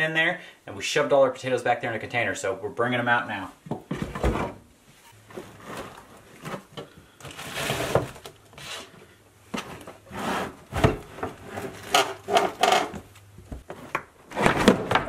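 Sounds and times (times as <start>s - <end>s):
plastic bin scraping on wood: 5.2s - 6.7s, 7.3s - 8.9s, 9.5s - 15.0s.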